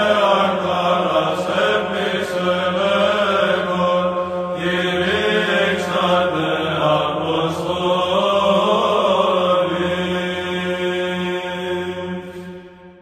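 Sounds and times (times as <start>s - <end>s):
voices chanting slow melody: 0.0s - 12.6s
held vocal drone: 0.0s - 13.0s.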